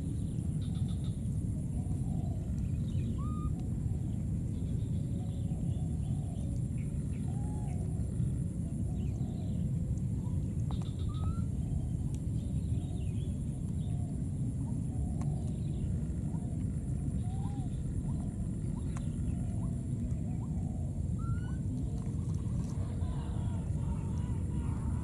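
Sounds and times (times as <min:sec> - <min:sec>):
steady low rumble: 0:00.0 - 0:25.0
baby monkeys calling: 0:03.0 - 0:03.6, 0:10.7 - 0:11.6, 0:17.1 - 0:25.0.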